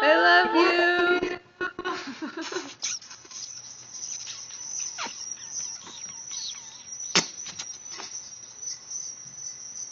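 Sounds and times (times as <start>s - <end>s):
insects chirping drone: 2.8s - 9.9s
short falling chirps: 2.8s - 9.9s
sharp click: 7.1s - 8.1s.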